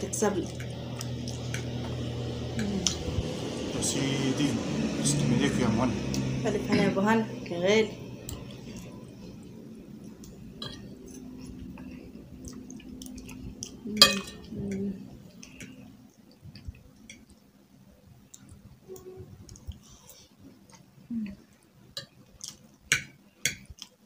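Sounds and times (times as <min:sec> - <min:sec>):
chewing: 0:00.4 - 0:03.1, 0:10.0 - 0:14.6, 0:21.5 - 0:22.8.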